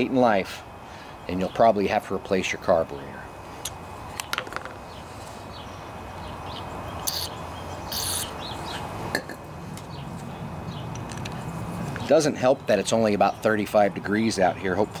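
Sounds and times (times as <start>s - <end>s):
steady low hum: 0.0s - 15.0s
aerosol can hissing: 7.1s - 7.3s, 7.9s - 8.3s.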